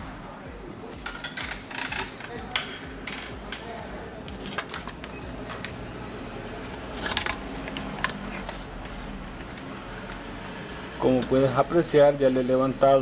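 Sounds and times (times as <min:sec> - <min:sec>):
small metal tools clicking: 0:01.0 - 0:03.8
steady low hum: 0:02.8 - 0:12.3.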